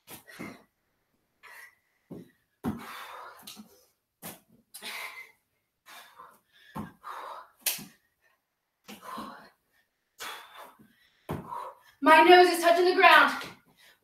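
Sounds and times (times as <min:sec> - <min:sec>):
woman gasping breaths: 0:01.4 - 0:04.0, 0:04.8 - 0:12.0.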